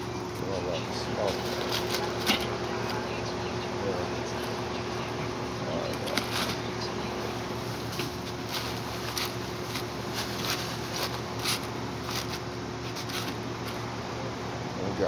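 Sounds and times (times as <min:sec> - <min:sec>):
steady background hum: 0:00.0 - 0:15.0
aluminium foil crinkling: 0:01.2 - 0:03.0, 0:07.3 - 0:13.8.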